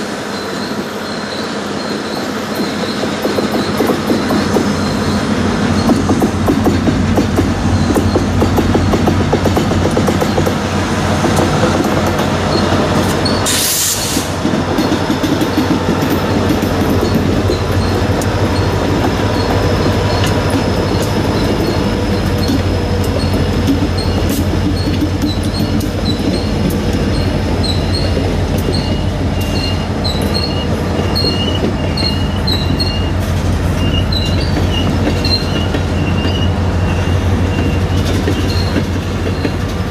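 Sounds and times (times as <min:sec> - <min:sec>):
diesel locomotives rumbling: 0:00.0 - 0:39.9
freight cars rolling on rails: 0:00.0 - 0:39.9
high wheel squeals: 0:12.4 - 0:14.3, 0:16.9 - 0:39.7
brief hiss: 0:13.5 - 0:14.4.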